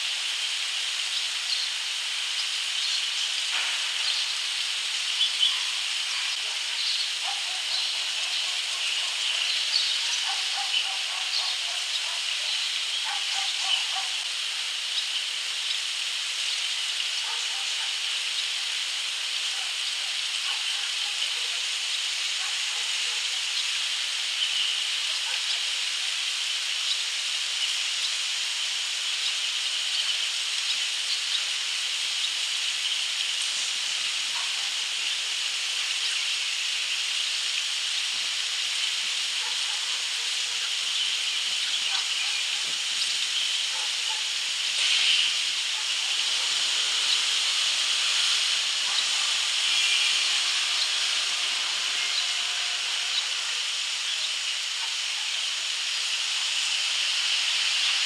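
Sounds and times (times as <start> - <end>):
high-pitched hiss: 0.0 - 58.0.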